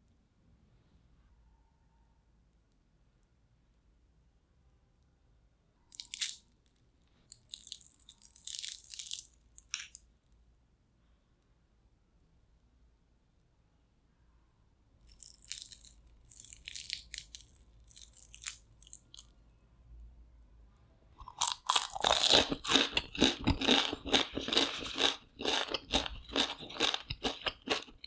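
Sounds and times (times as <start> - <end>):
crispy food crunching when chewed: 5.9 - 6.7, 7.3 - 10.1, 15.1 - 19.5, 21.2 - 28.0.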